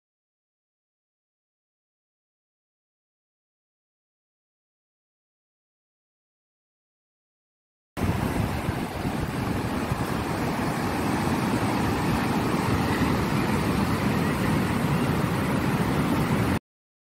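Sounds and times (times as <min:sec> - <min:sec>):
surf breaking on a beach: 0:08.0 - 0:16.6
wind rumbling on the microphone: 0:08.0 - 0:16.6.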